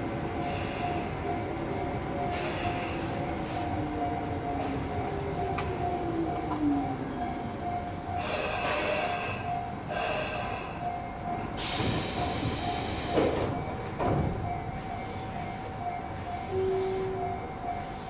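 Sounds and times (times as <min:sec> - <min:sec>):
train wheel and brake noises: 0:00.2 - 0:18.0
train doors knocking: 0:11.3 - 0:14.8.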